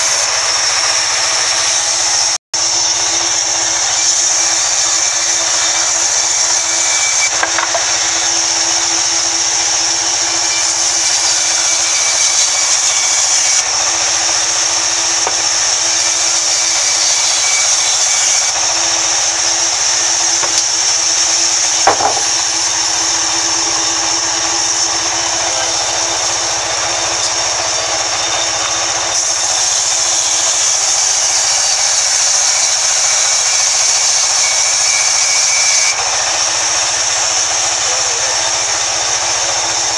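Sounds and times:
band saw cutting log: 0:00.0 - 0:39.9
sharp knock: 0:21.8 - 0:22.3.

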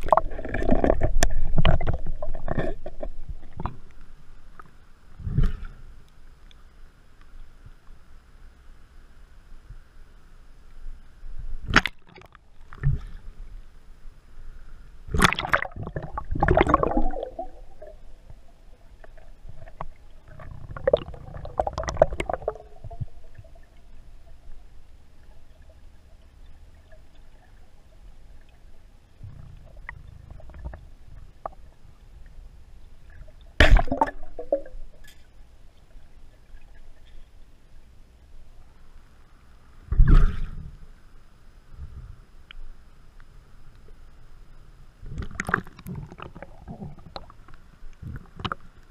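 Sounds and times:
water gurgling underwater: 0:00.0 - 0:03.9, 0:15.1 - 0:24.6, 0:29.2 - 0:31.8, 0:33.0 - 0:35.1, 0:45.0 - 0:48.6.

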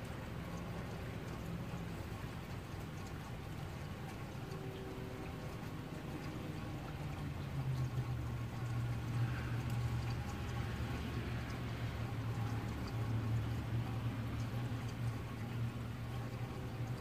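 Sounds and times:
steady rain falling: 0:00.0 - 0:17.0.

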